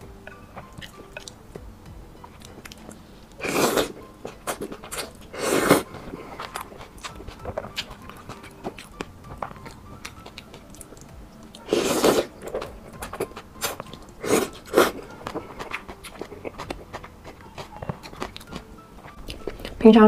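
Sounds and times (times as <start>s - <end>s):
slurping noodles: 3.4s - 6.5s, 11.6s - 12.6s, 13.6s - 15.0s
wet chewing and lip smacks: 12.3s - 19.8s.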